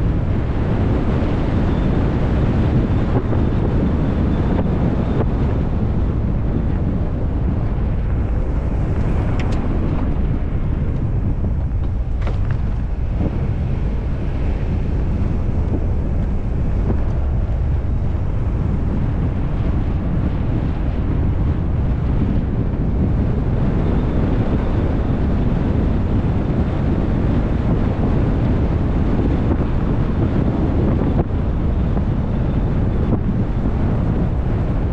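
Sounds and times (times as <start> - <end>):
truck running noise: 0.0 - 21.6
wind rumble on microphone: 0.0 - 34.9.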